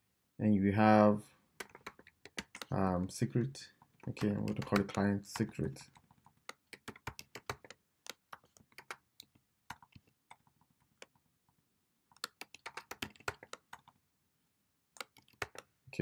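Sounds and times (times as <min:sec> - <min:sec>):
typing on computer keyboard: 0:01.6 - 0:02.8, 0:03.9 - 0:11.2, 0:12.1 - 0:14.0, 0:15.0 - 0:15.7.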